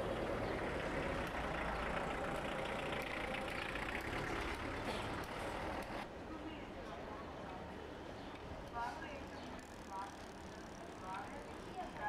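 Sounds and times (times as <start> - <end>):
vehicle engine running: 0.0 - 6.0
outdoor noise: 0.0 - 12.0.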